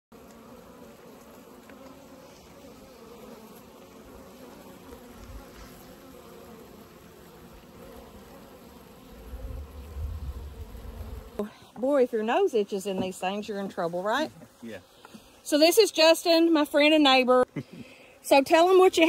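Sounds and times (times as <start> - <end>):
bees buzzing: 0.2 - 19.0.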